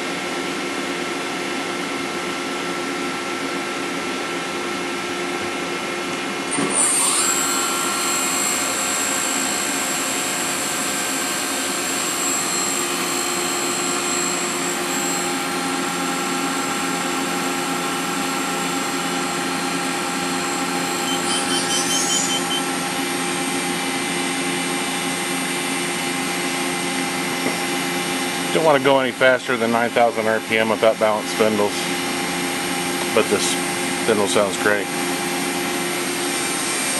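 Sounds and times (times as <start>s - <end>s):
machine spindle whining: 6.5s - 17.0s, 18.6s - 23.6s.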